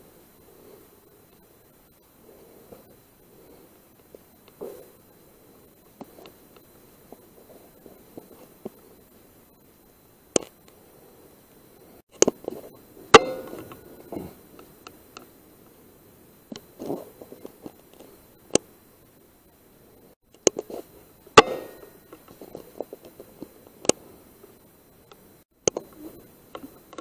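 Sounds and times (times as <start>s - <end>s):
faint rustling and scratching: 16.6s - 18.4s.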